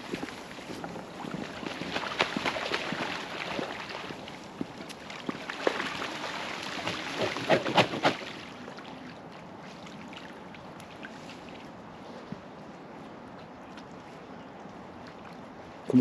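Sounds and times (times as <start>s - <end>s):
swan wing-beats: 0.0s - 8.6s
swans splashing in water: 0.0s - 11.7s.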